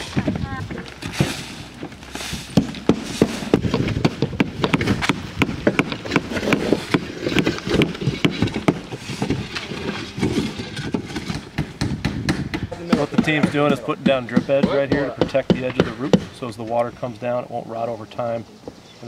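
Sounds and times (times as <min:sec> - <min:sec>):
shingles tearing off roof: 0:00.0 - 0:16.4
shovels scraping roof deck: 0:00.0 - 0:16.8
clatter of tools and debris: 0:05.8 - 0:11.5.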